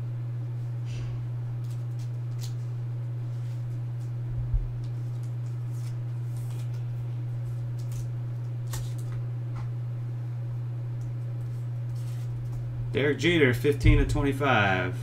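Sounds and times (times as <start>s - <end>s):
low hum: 0.0s - 15.0s
card rustling in plastic sleeve: 1.6s - 9.3s, 11.2s - 12.6s.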